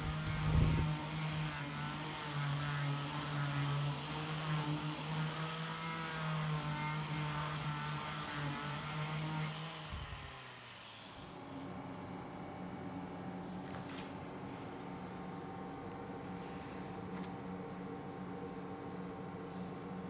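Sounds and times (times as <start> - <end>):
angle grinder sanding wood: 0.0 - 11.1.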